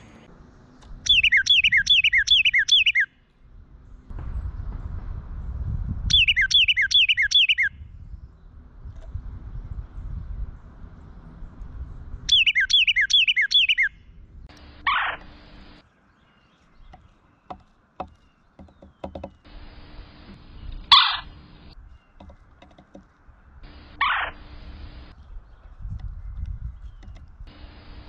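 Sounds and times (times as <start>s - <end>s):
wren singing: 0.8s - 3.1s, 6.1s - 8.6s, 11.9s - 28.0s
woodpecker harsh calls: 1.1s - 3.2s, 6.1s - 7.7s, 12.3s - 15.8s, 16.4s - 25.1s.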